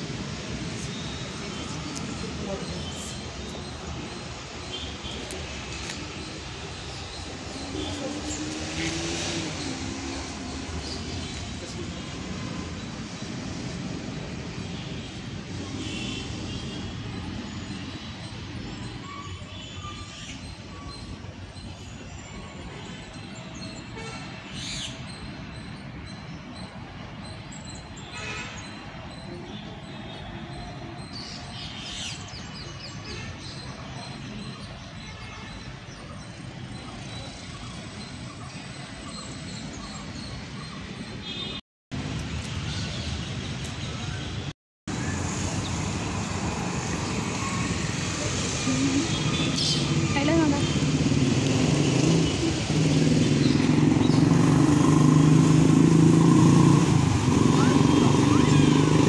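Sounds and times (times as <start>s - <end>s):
small birds chirping: 45.1s - 55.2s.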